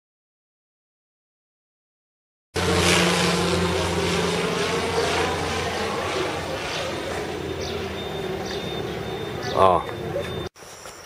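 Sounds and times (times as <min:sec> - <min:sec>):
propeller plane engine drone: 0:02.6 - 0:10.5.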